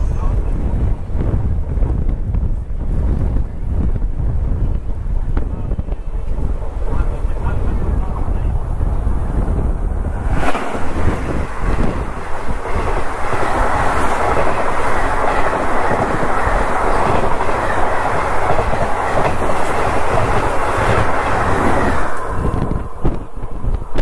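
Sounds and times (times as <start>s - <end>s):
train coaches rushing past: 5.4s - 24.0s
clattering train wheels: 10.4s - 24.0s.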